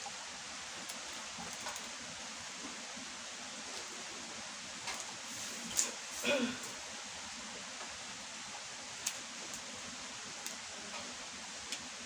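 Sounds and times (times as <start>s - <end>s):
steady rain falling: 0.0s - 12.0s.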